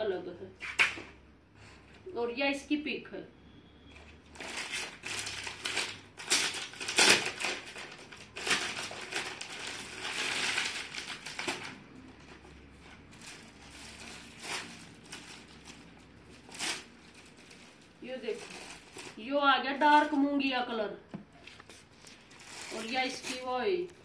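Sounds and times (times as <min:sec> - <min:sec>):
fabric rustling and crinkling: 0:04.3 - 0:20.4, 0:21.3 - 0:24.0.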